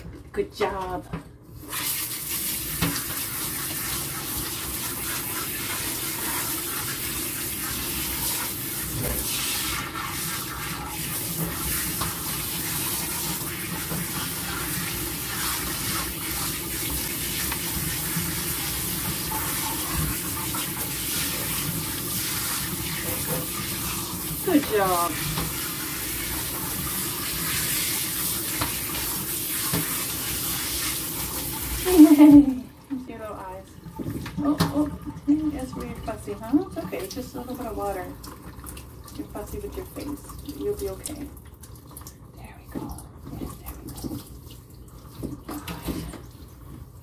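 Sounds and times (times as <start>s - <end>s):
water splashing into tub: 0.0s - 47.0s
shower sprayer spraying water: 1.6s - 33.6s.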